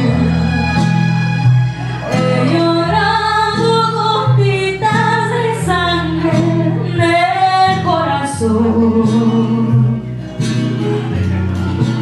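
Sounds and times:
woman singing: 0.0s - 0.5s, 2.1s - 10.0s
guitar accompaniment: 0.0s - 12.0s
low bass notes: 0.0s - 12.0s.

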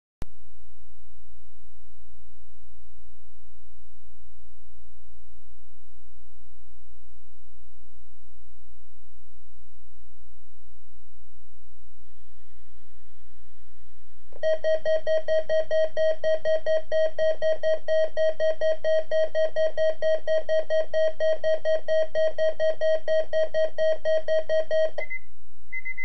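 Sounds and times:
rapidly pulsing electronic alarm beep: 14.4s - 25.2s, 25.8s - 26.0s.

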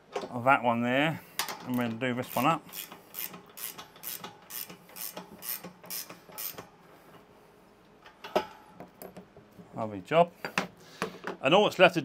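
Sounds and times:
spanner rasping on nut: 1.7s - 6.6s.

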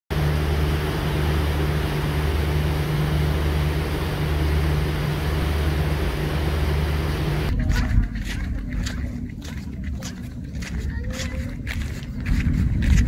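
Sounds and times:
churning wake rushing: 0.1s - 7.5s
boat engine humming: 0.1s - 13.0s.

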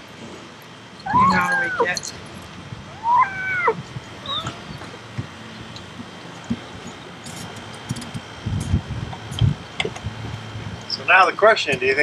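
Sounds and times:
cat meowing: 1.1s - 2.0s, 2.9s - 4.8s.

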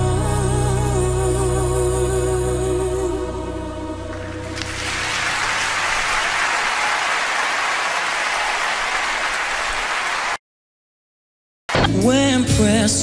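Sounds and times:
audience applauding: 4.1s - 10.4s.

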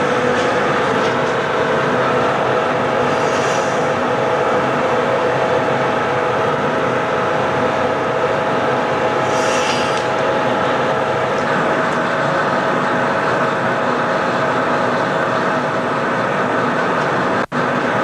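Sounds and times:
loud equipment roar: 0.0s - 18.0s
brief hiss: 3.1s - 3.8s, 9.3s - 10.1s.

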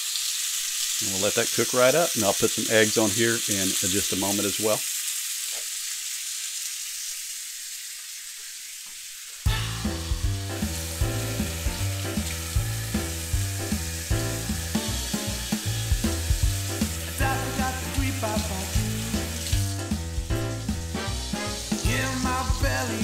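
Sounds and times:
bacon sizzling in a skillet: 0.0s - 23.0s
background music with a beat: 9.5s - 23.0s.

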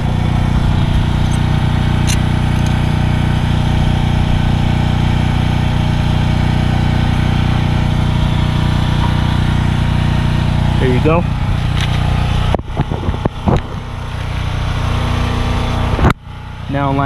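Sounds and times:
engine droning: 0.0s - 17.0s.

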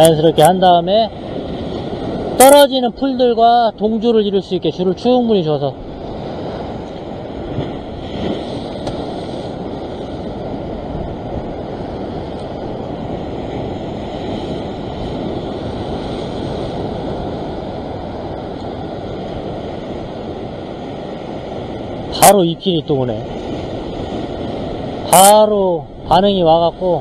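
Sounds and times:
ocean waves washing over rock: 0.0s - 27.0s
wind: 0.0s - 27.0s.

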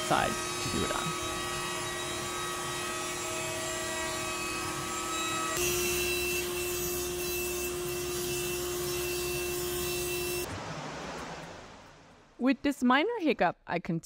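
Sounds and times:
router shaping wood: 0.0s - 10.4s
table saw cutting wood: 0.0s - 10.5s.

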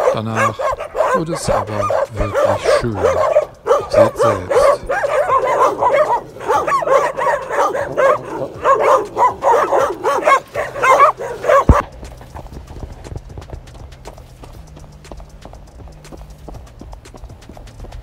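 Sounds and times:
dogs barking and yipping: 0.0s - 18.0s
footsteps on dirt track: 0.0s - 18.0s.

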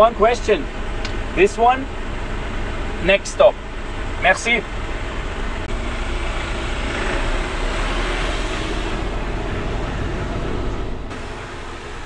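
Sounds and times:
diesel truck engine rumble: 0.0s - 12.0s
road noise in cab: 0.0s - 12.0s.

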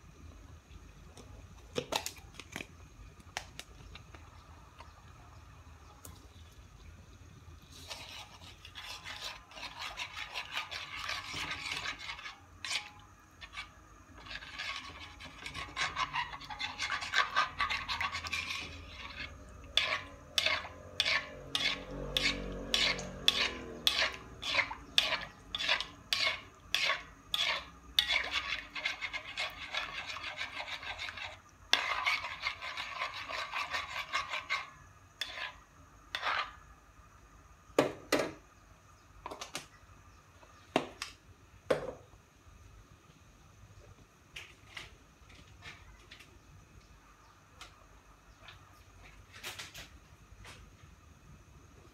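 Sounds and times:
sauce simmering: 3.8s - 35.8s
spatula scraping a wok: 7.6s - 36.7s.

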